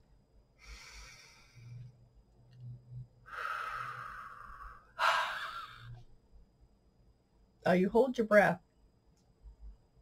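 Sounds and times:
woman breathing deeply: 0.6 - 2.0, 3.2 - 6.0.

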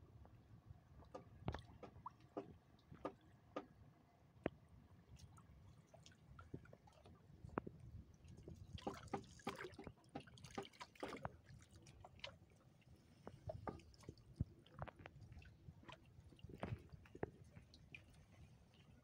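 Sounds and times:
water splashing and dripping: 8.2 - 12.6.

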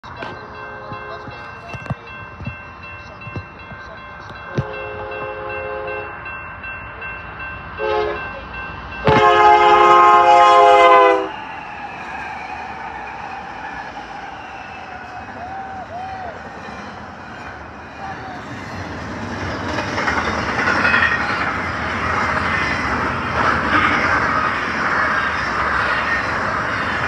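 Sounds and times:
crossing warning bell ringing: 0.0 - 27.0
locomotive air horn blasts: 4.5 - 6.1, 7.8 - 8.3, 9.0 - 11.4
locomotives rumbling past: 7.3 - 27.0.

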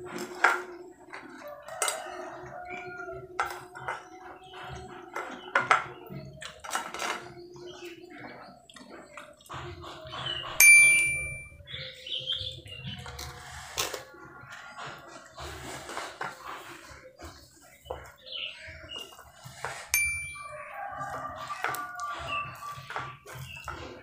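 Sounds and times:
high clear ding: 10.6 - 11.6, 20.0 - 20.6.

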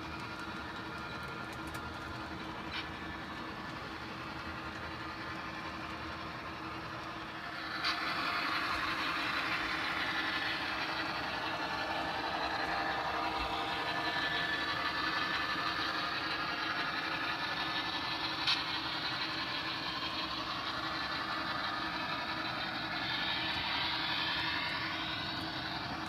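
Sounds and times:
model locomotive engine drone: 0.0 - 26.0
wheels rolling on track: 0.0 - 26.0.

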